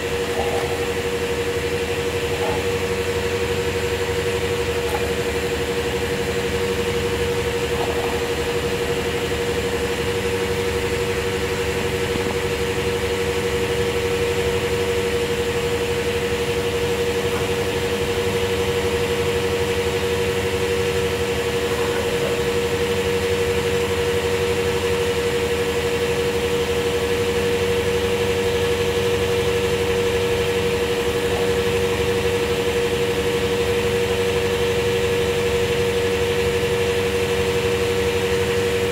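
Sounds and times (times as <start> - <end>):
fuel pump humming: 0.0 - 38.9.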